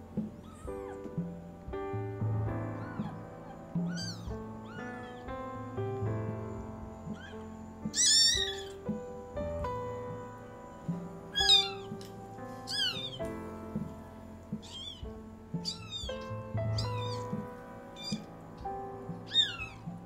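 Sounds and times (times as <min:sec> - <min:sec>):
soft background music: 0:00.0 - 0:20.0
kitten mewing: 0:02.8 - 0:05.3, 0:07.1 - 0:08.8, 0:11.3 - 0:11.9, 0:12.7 - 0:13.2, 0:14.6 - 0:17.4, 0:18.0 - 0:18.3, 0:19.3 - 0:19.8.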